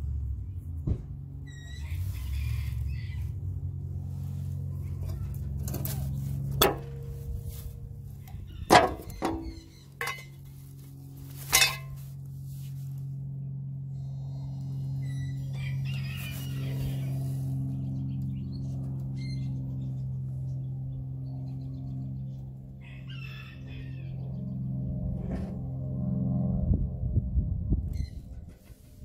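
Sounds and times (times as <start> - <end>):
steady low hum: 0.0 - 22.8, 23.5 - 29.0.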